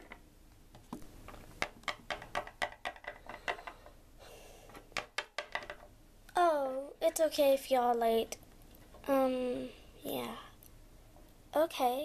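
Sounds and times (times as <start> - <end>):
plastic figurines clicking on wood: 1.6 - 3.8.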